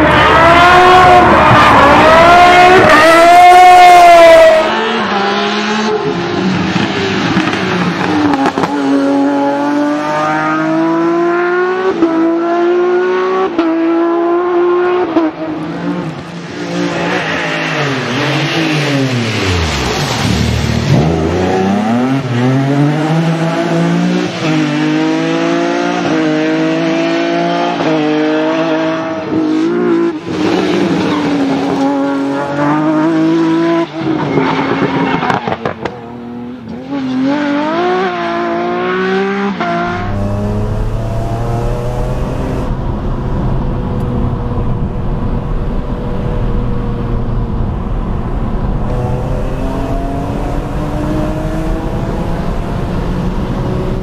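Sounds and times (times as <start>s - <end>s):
rally car engine revving hard: 0.0s - 43.1s, 48.8s - 54.0s
car passing by: 16.2s - 25.6s.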